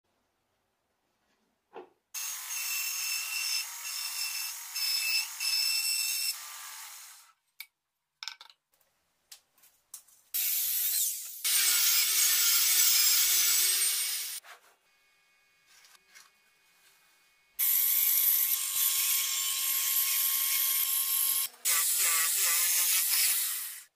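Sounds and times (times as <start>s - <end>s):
table saw cutting plywood: 2.2s - 7.4s, 10.4s - 14.4s, 17.6s - 23.9s
band saw cutting plywood: 17.6s - 23.9s.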